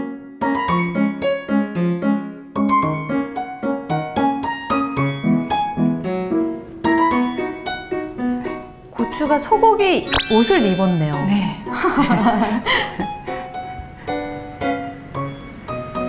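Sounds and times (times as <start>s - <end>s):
piano melody: 0.0s - 16.0s.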